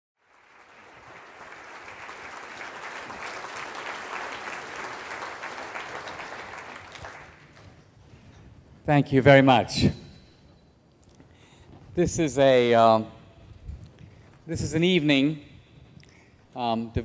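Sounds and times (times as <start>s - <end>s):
audience applauding: 0.2s - 7.8s.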